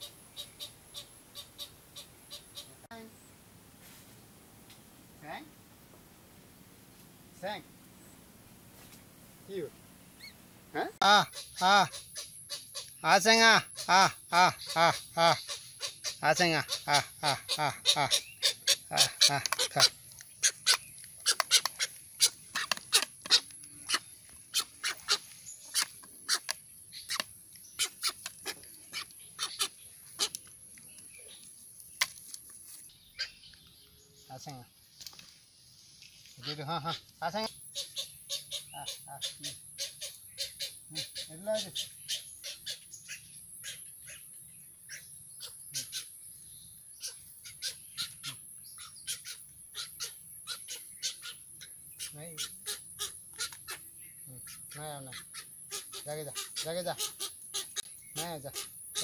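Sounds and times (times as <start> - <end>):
egret giving harsh calls: 11.0 - 12.0, 13.0 - 26.4
bird bill clicking: 18.0 - 32.6, 52.0 - 53.8.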